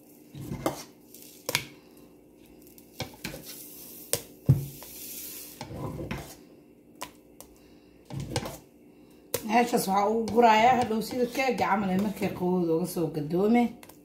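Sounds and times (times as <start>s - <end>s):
utensil scraping a bowl: 0.3s - 1.0s, 3.0s - 6.4s, 8.0s - 8.7s, 10.1s - 12.4s.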